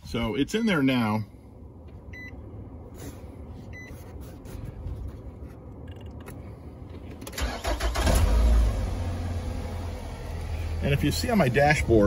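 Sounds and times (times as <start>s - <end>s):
car engine starting and idling: 5.0s - 12.0s.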